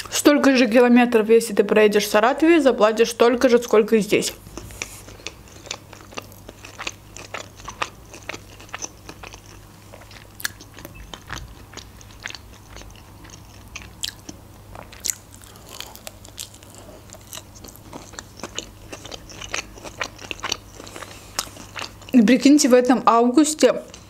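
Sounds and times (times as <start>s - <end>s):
faint low hum: 0.0s - 24.0s
person chewing crunchy food: 4.3s - 22.2s.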